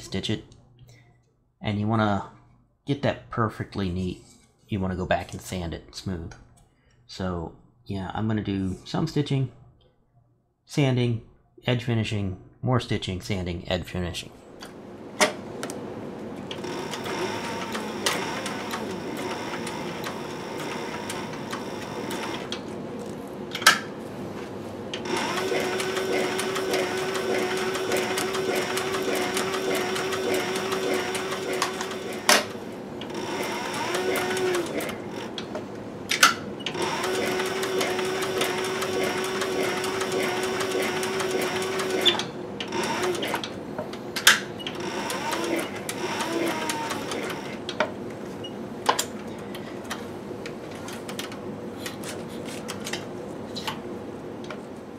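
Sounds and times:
sewing machine stitching leather: 16.5s - 22.6s, 25.0s - 35.5s, 36.7s - 43.6s, 44.6s - 47.7s.

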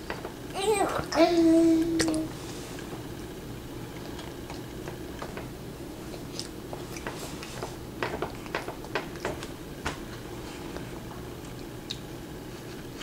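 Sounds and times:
chewing clicks and smacks: 3.9s - 5.4s, 11.4s - 12.1s.

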